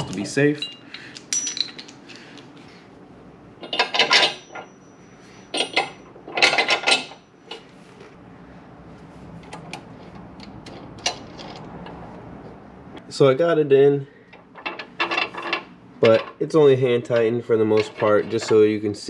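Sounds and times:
steel bolts and nuts clattering: 0:00.0 - 0:02.0, 0:03.6 - 0:07.6, 0:14.3 - 0:16.4, 0:17.1 - 0:18.8.

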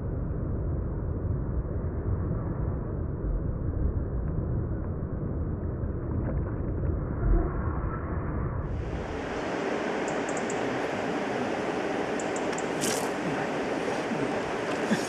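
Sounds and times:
muffled river water flowing: 0:08.7 - 0:15.0.

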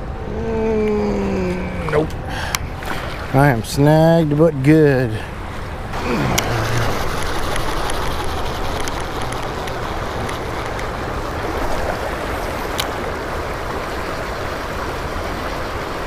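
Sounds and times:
river rushing over riffles: 0:05.2 - 0:16.0.

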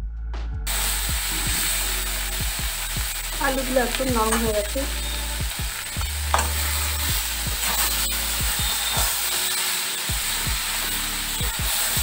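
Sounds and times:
frying sizzle: 0:00.7 - 0:12.0
metal spatula scraping pan: 0:06.2 - 0:12.0.

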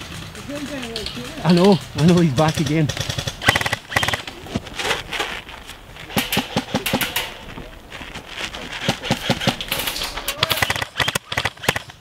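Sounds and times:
airsoft rifles firing: 0:00.0 - 0:04.5, 0:06.1 - 0:07.5, 0:08.6 - 0:12.0.

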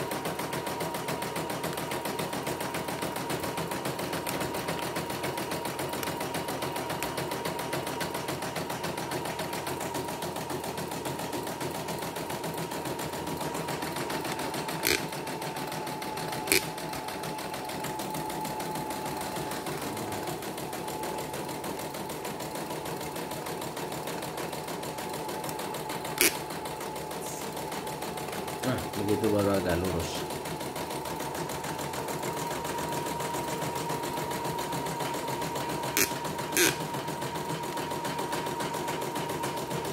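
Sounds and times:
embroidery machine rattling: 0:00.0 - 0:39.9.

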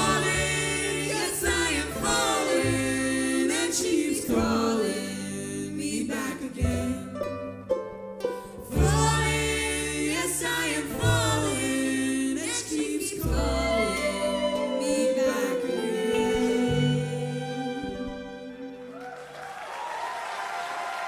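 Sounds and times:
man and woman singing in harmony: 0:00.0 - 0:07.2, 0:08.7 - 0:18.9
low bass notes: 0:00.0 - 0:18.8.

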